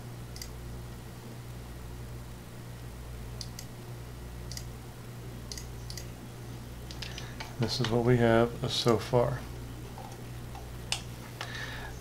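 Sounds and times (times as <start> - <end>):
steady low hum: 0.0 - 12.0
computer mouse clicking: 4.5 - 4.7, 5.5 - 6.1.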